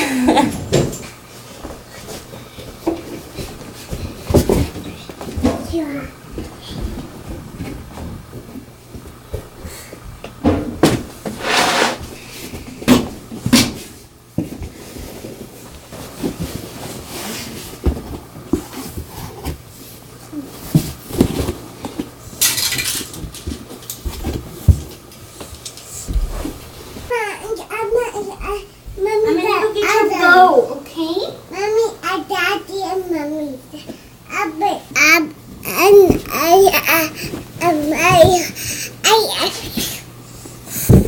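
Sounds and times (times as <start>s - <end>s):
rustling scrapes on carpet: 11.3s - 12.1s.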